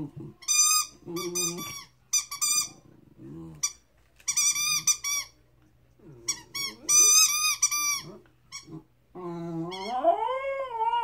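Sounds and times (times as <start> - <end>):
puppy howling: 9.2 - 11.0.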